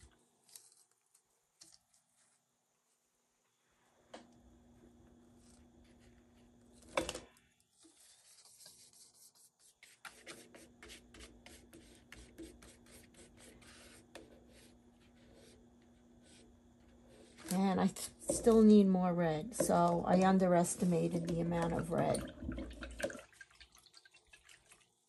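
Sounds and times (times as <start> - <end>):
faint hum: 0.0 - 23.2
paintbrush scraping and dabbing: 7.7 - 22.0.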